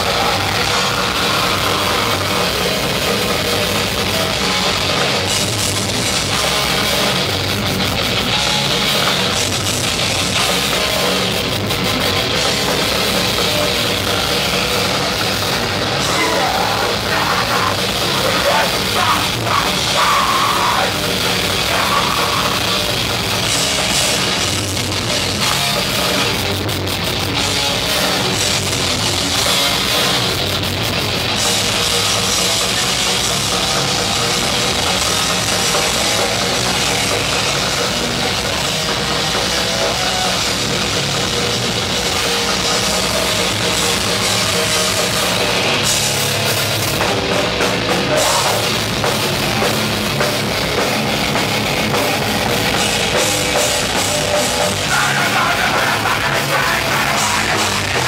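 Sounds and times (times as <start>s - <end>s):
loud live punk band: 0.0s - 58.0s.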